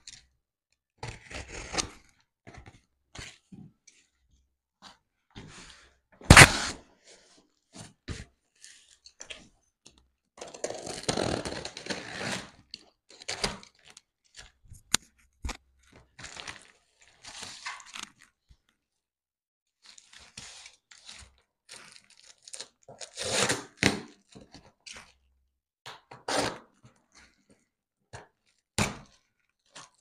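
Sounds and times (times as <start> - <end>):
blade slitting tape and cardboard: 6.3 - 6.8, 22.6 - 24.2
box thumping down: 6.3 - 6.8.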